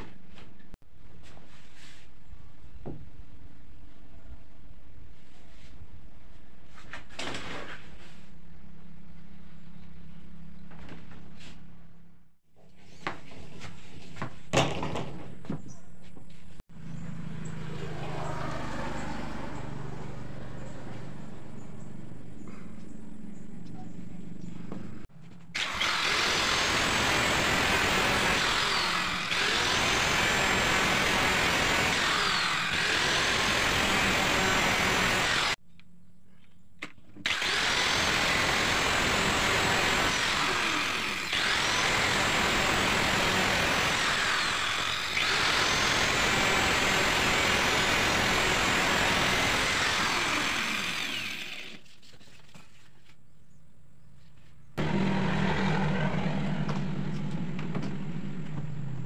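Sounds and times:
power tool cutting wood: 25.6 - 35.6, 37.2 - 51.9, 54.8 - 57.4.

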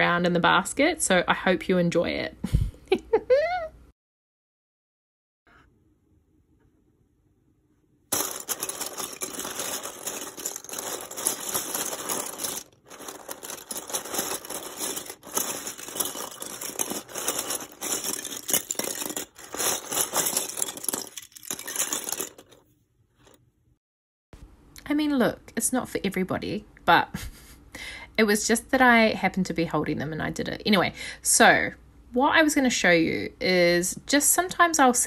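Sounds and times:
plastic cutters clattering: 8.1 - 22.6.

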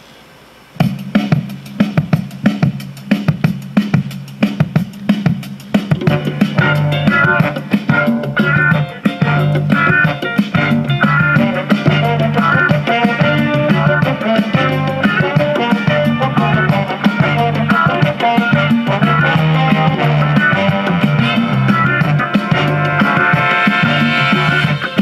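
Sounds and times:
band music from a cassette: 0.0 - 25.0.

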